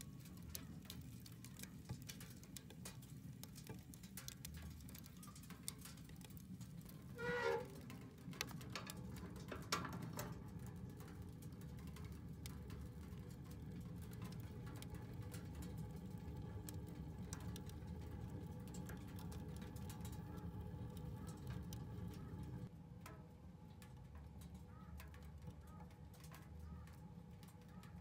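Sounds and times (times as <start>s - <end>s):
wood fire crackling and popping: 0.0s - 28.0s
faint low rumble: 6.8s - 24.8s.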